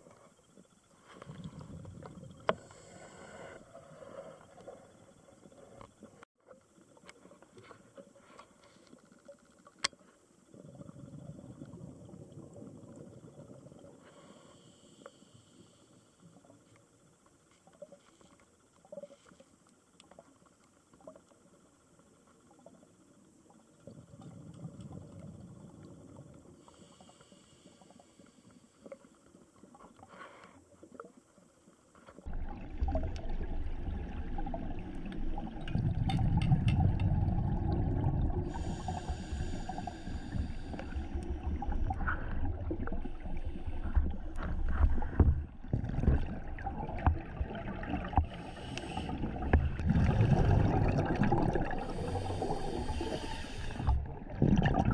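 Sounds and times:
faint underwater clicks: 0.0s - 54.0s
scuba diver exhaling bubbles: 32.3s - 54.9s.

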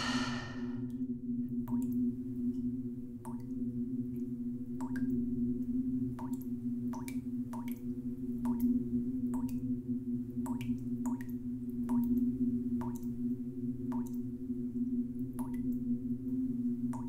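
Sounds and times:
steady low hum: 0.0s - 0.8s
water dripping: 1.6s - 2.6s, 3.2s - 9.7s, 10.3s - 14.3s, 15.2s - 16.0s.

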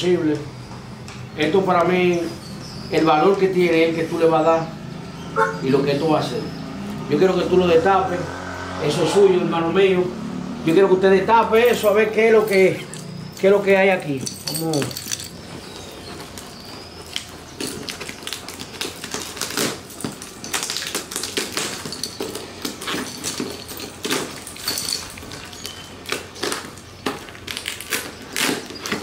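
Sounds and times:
gift wrapping being torn: 16.1s - 29.0s.

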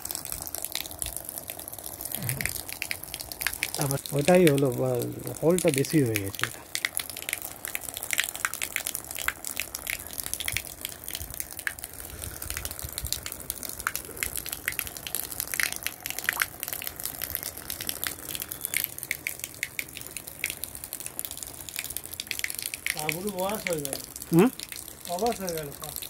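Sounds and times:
water jet splashing into tank: 2.1s - 17.4s.

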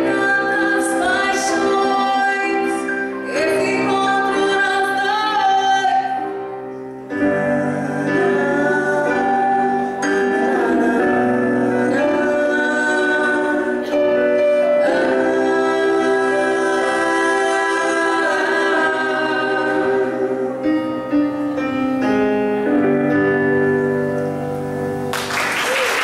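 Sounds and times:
woman singing lead: 0.0s - 21.9s
electric keyboards: 0.0s - 26.0s
men singing harmony: 14.7s - 20.7s
audience applause: 25.1s - 26.0s.

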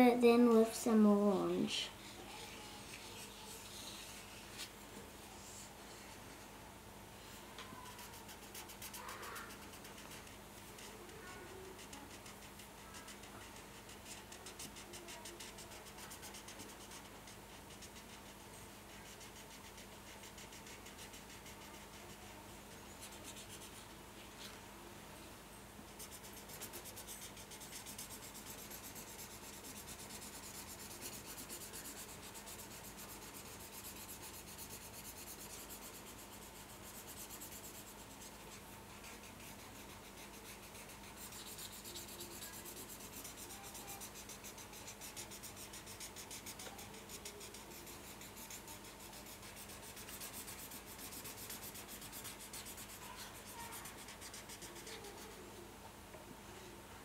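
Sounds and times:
faint steady hum: 0.0s - 57.0s
marker scribbling on paper: 7.9s - 11.0s, 11.6s - 18.4s, 19.0s - 23.8s, 26.0s - 55.4s.

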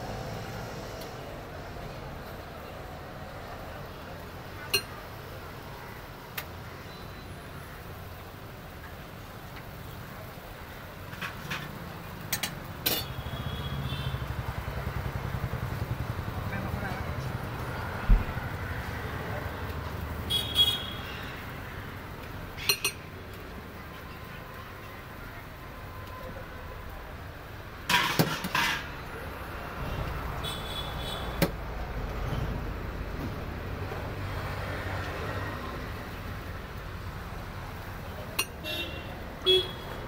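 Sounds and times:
street traffic hum: 0.0s - 40.0s.

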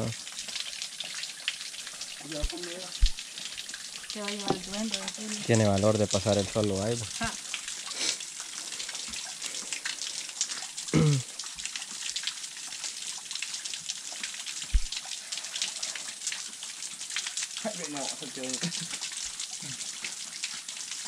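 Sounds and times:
water trickling over rocks: 0.0s - 21.0s
short voice sound: 11.0s - 11.2s
low thump: 14.7s - 14.9s.

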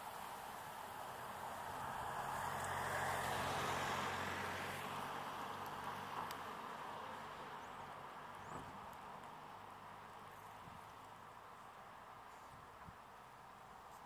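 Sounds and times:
vehicle passing: 1.3s - 7.4s.

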